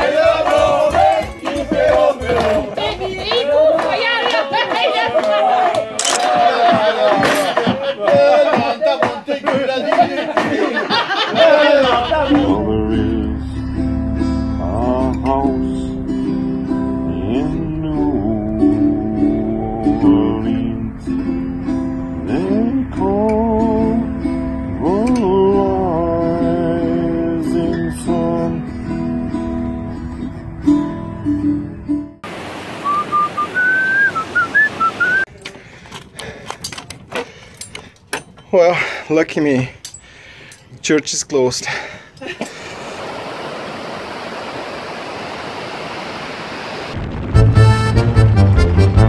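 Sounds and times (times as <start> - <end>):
acoustic guitar strumming: 11.7 - 32.2
person whistling: 32.8 - 35.3
wind-like noise: 42.7 - 47.6.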